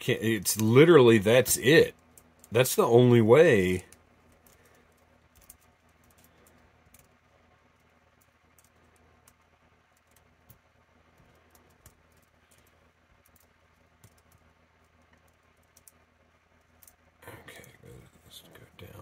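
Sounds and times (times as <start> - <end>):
small plastic clicks: 3.8 - 17.1.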